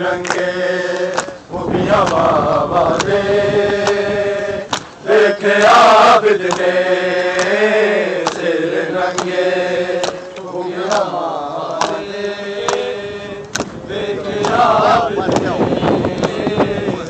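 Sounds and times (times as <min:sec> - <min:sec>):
men chanting in unison: 0:00.0 - 0:17.0
chest-beating slaps: 0:04.7 - 0:05.0, 0:06.5 - 0:06.7, 0:07.4 - 0:07.6, 0:10.0 - 0:11.1, 0:11.7 - 0:12.0, 0:12.6 - 0:13.8.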